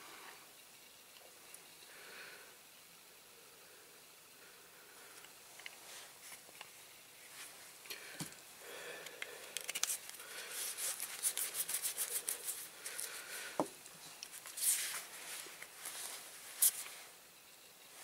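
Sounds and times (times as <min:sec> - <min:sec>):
small plastic parts clicking: 0:09.0 - 0:10.2.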